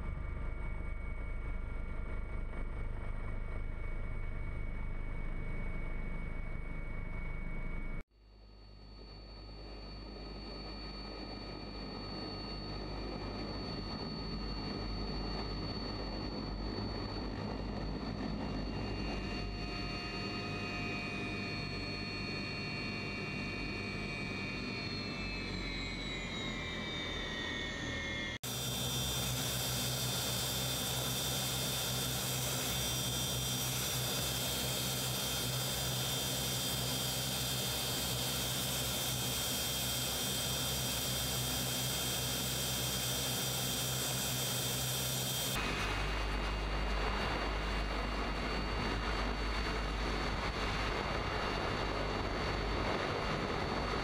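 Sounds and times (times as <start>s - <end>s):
helicopter turbine whine: 0.0s - 54.0s
rotor hum: 8.9s - 54.0s
wind noise: 45.6s - 54.0s.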